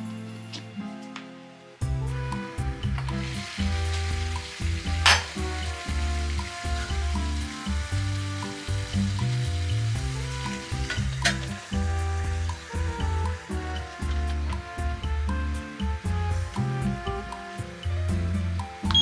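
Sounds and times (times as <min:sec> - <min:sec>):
background music with bass line: 0:01.8 - 0:19.0
water boiling: 0:01.9 - 0:19.0
metal lid clinking: 0:05.0 - 0:05.3.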